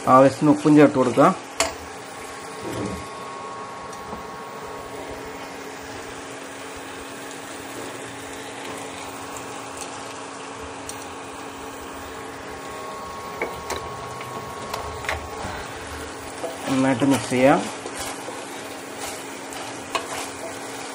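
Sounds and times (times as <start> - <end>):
sauce bubbling and sizzling in pan: 0.0 - 20.9
steady hum: 1.3 - 20.9
spatula scraping pan: 13.4 - 20.9.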